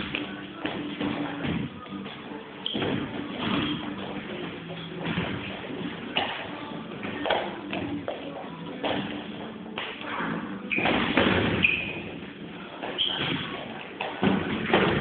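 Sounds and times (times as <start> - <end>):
boxing gloves thudding: 2.7 - 6.4, 10.8 - 12.4, 13.2 - 15.0.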